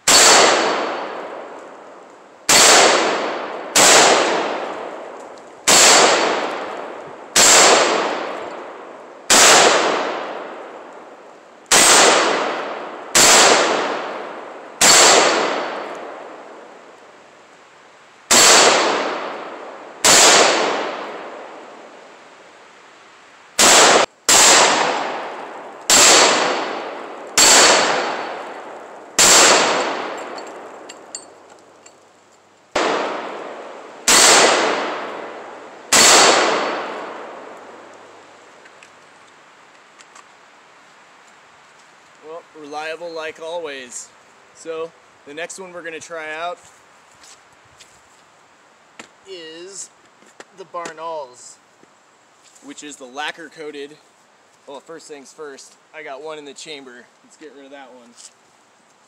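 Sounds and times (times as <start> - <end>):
rifle shots: 0.0 - 1.6, 2.5 - 10.7, 11.7 - 16.4, 18.3 - 21.5, 23.6 - 30.9, 32.7 - 37.8.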